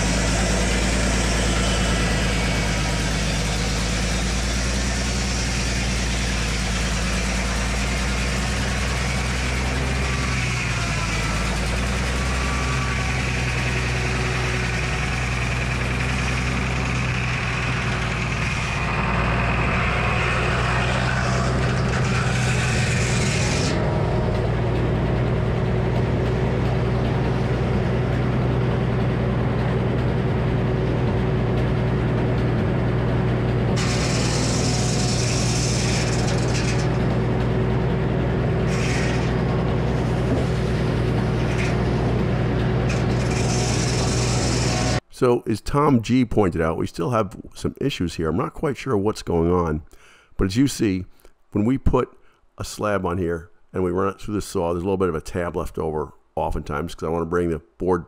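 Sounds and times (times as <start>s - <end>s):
circular saw cutting log: 0.0s - 45.1s
mill engine running: 0.0s - 45.9s.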